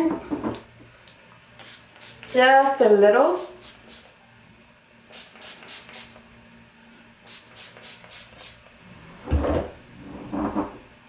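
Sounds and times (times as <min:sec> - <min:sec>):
spray bottle spritzes: 0:01.6 - 0:02.4, 0:03.4 - 0:04.1, 0:05.1 - 0:06.2, 0:07.2 - 0:08.6.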